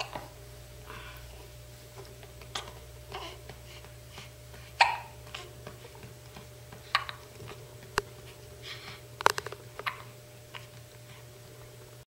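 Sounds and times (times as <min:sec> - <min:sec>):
faint steady hum: 0:00.0 - 0:12.0
baby hiccupping: 0:02.4 - 0:03.6, 0:04.7 - 0:06.0, 0:06.9 - 0:07.2, 0:09.8 - 0:10.2.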